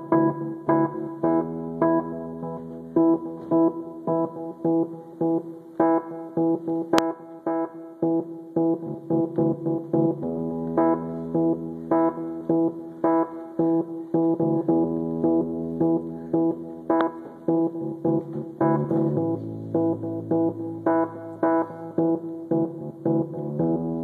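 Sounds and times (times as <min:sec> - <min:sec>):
sharply struck repeating notes: 0:00.0 - 0:24.0
held bass notes: 0:13.6 - 0:24.0.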